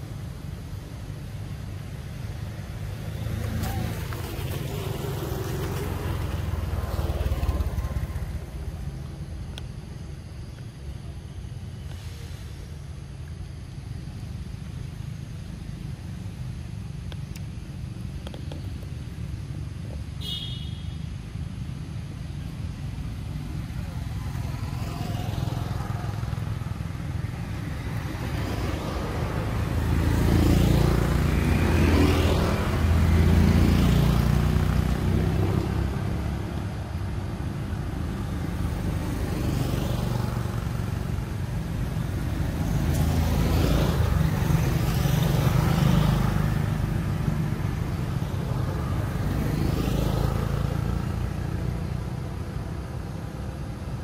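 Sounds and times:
traffic rumble: 0.0 - 54.0.

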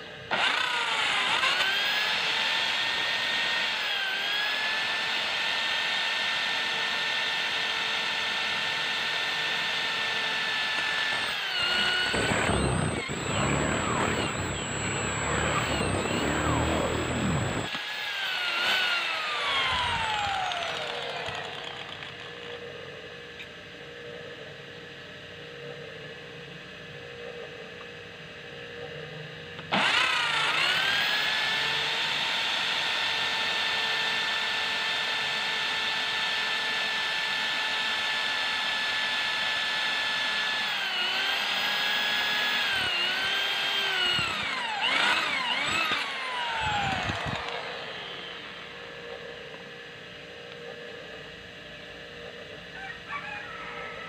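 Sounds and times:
electric drill boring through steel: 0.2 - 22.6, 29.6 - 50.2.

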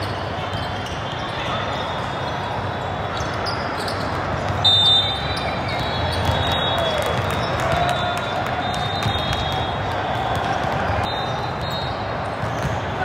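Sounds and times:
referee's whistle blast: 4.6 - 7.2, 7.9 - 10.2, 11.0 - 12.2
volleyballs struck and bouncing: 5.2 - 11.1, 12.2 - 13.0.

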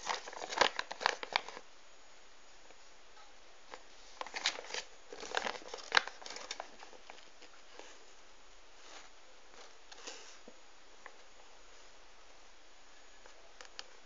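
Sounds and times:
glossy paper crinkling: 0.0 - 1.7, 3.7 - 8.1.

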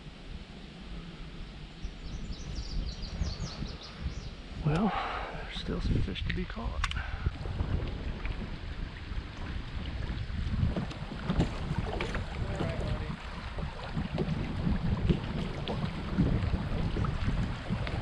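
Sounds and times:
wind buffeting microphone: 0.9 - 18.0
water rushing over riffle: 7.3 - 18.0.

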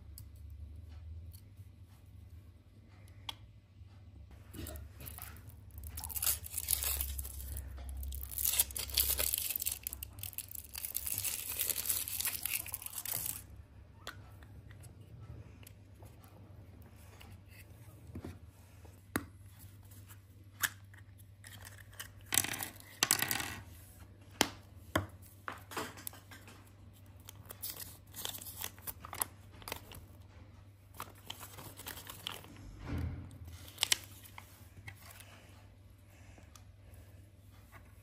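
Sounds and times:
wrapping crinkling and tearing: 5.1 - 13.4, 27.2 - 30.0, 31.0 - 32.5, 33.6 - 34.5.

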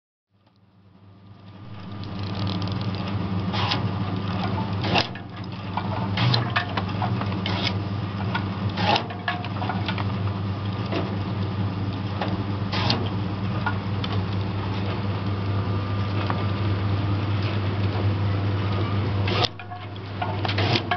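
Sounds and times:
small clicks: 1.3 - 3.2
cutting machine humming: 18.8 - 20.9.

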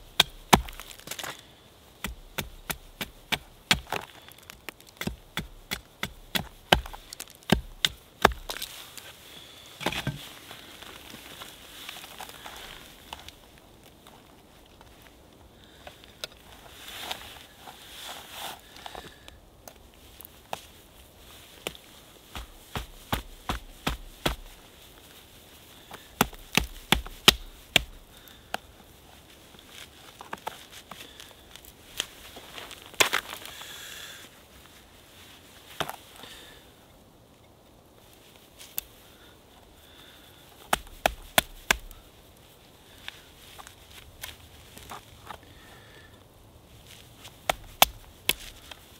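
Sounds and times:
axe chopping wood: 0.0 - 1.2, 2.0 - 8.7, 22.4 - 24.5, 26.2 - 28.0, 40.7 - 42.0, 47.4 - 48.5.

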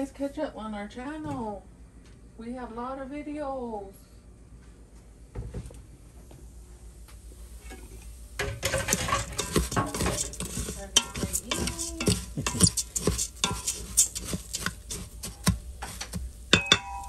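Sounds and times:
spoon stirring rice in metal pot: 7.6 - 17.0.

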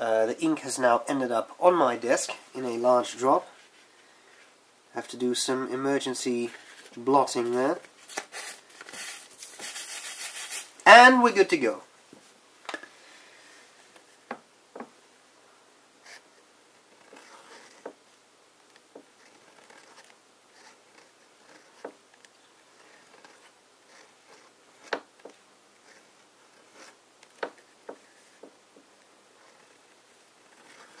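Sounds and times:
pen nib scratching paper: 17.0 - 17.9, 19.2 - 21.9, 22.8 - 27.0, 29.4 - 31.0.

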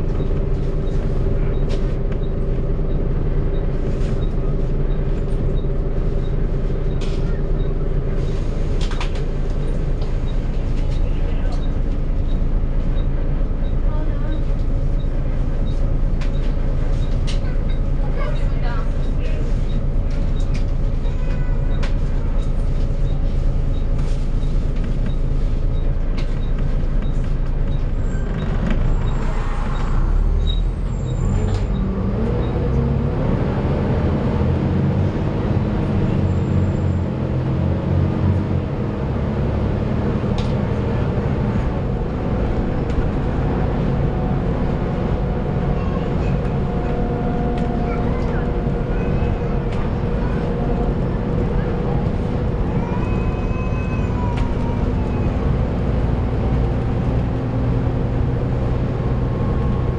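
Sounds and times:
bus diesel engine running: 0.0 - 59.9.

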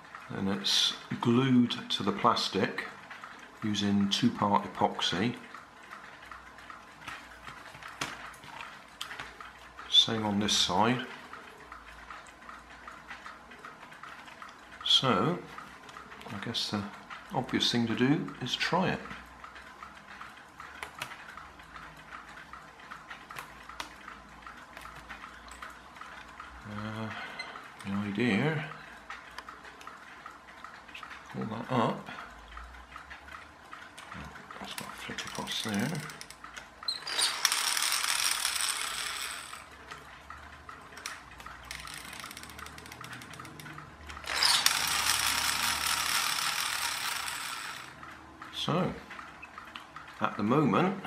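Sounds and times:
plastic gears clicking: 32.5 - 50.2.

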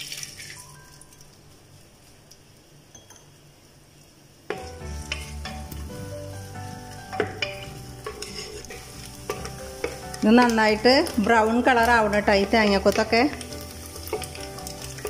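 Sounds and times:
coconut frying in oil: 0.0 - 15.0
wooden spatula scraping pot: 4.5 - 5.8, 7.1 - 15.0.

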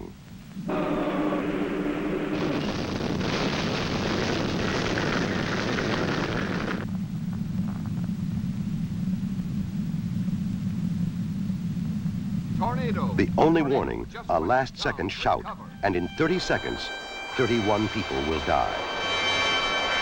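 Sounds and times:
steady low rumble: 0.0 - 20.0
loud rushing wind: 0.6 - 6.9.

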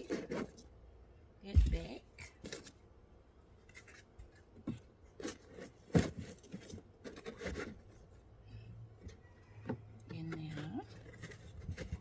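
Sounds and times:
rustling and scraping of items: 0.0 - 1.0, 1.6 - 12.0.

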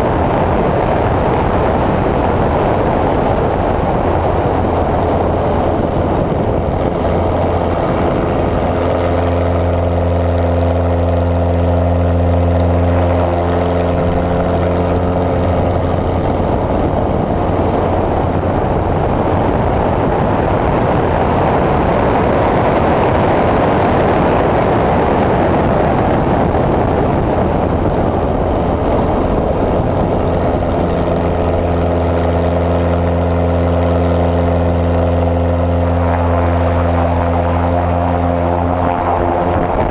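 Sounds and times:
propeller plane engine droning: 0.0 - 39.9
rush of air: 0.0 - 39.9.

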